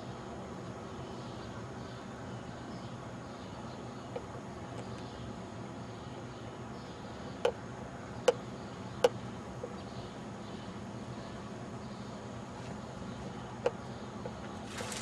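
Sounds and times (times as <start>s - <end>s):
outdoor background hum: 0.0s - 15.0s.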